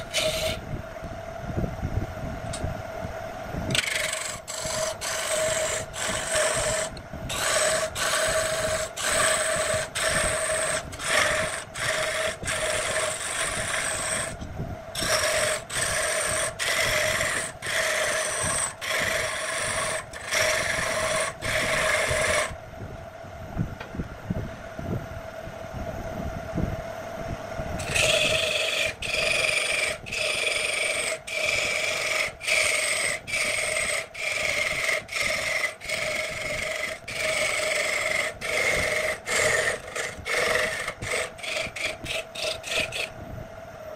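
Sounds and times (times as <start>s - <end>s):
turning tool cutting wood: 0.0s - 0.6s, 3.7s - 14.4s, 15.0s - 22.6s, 27.8s - 43.1s
lathe humming: 0.0s - 0.7s, 3.7s - 22.6s, 27.8s - 43.2s.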